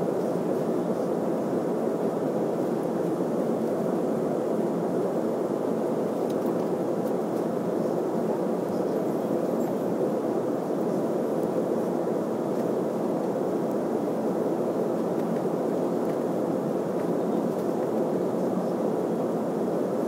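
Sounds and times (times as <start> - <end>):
airliner cabin engine drone: 0.0 - 20.0.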